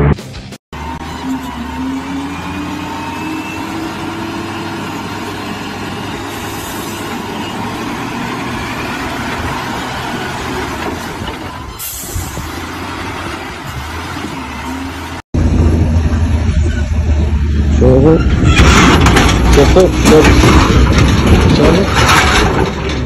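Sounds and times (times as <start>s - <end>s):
diesel engine under load: 0.7s - 23.0s.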